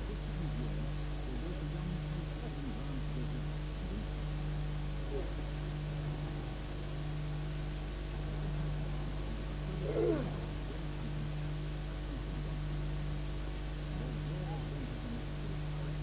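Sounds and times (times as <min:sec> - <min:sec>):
electrical hum: 0:00.0 - 0:16.0
faint indistinct voices: 0:00.0 - 0:16.0
steady hiss: 0:00.0 - 0:16.0.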